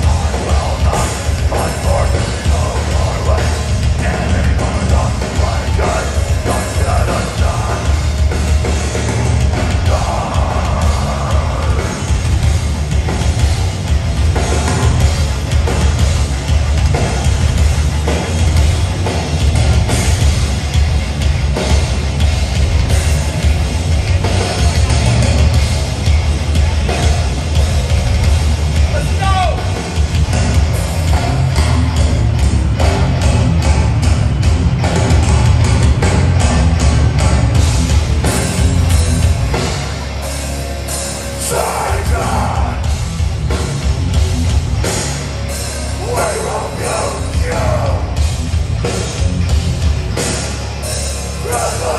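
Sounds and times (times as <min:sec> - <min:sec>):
bass guitar: 0:00.0 - 0:51.9
distorted electric guitars: 0:00.0 - 0:51.9
live rock band playing: 0:00.0 - 0:51.9
pounding drum kit: 0:00.0 - 0:51.9
shouted vocal: 0:41.4 - 0:42.8, 0:46.0 - 0:48.2, 0:51.4 - 0:51.9.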